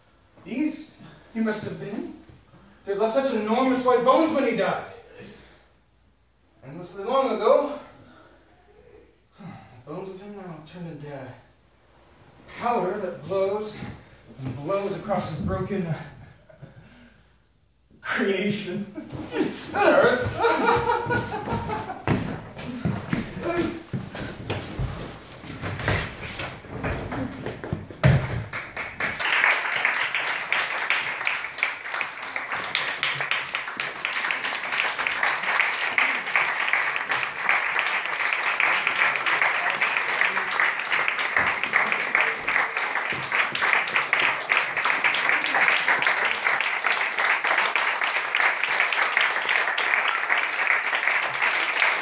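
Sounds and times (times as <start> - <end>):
audience applauding: 28.4 - 52.0.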